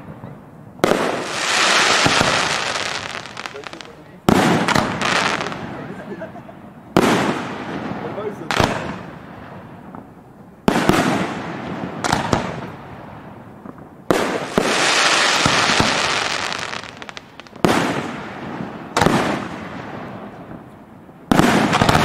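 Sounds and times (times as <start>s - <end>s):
firework shells bursting: 0.8s - 5.7s
dense crackling rush: 2.0s - 4.3s.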